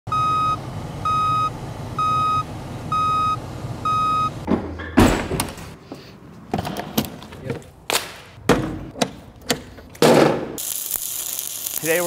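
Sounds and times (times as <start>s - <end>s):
back-up alarm beeping: 0.1s - 4.4s
truck engine rumble: 0.1s - 5.0s
loud thump: 4.5s - 5.8s.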